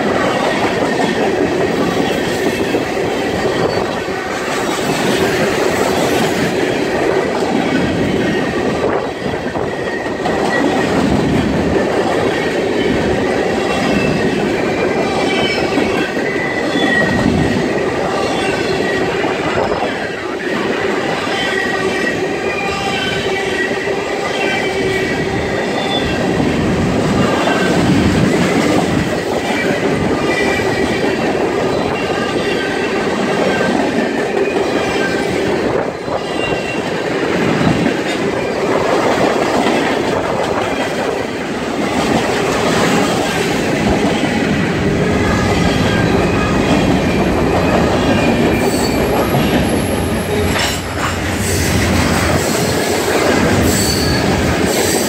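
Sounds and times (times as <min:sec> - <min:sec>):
train wheels clattering on rails: 0:00.0 - 0:55.0
high-pitched wheel squeal: 0:45.3 - 0:50.8, 0:53.6 - 0:55.0.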